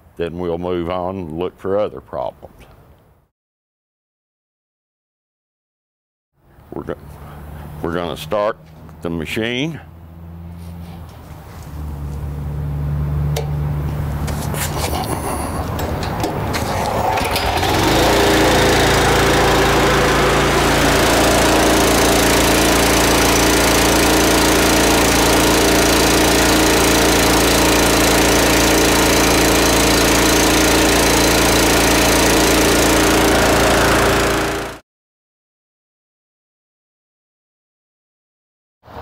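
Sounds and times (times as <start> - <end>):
pressure washer engine running: 7.0 - 8.9, 11.7 - 34.8.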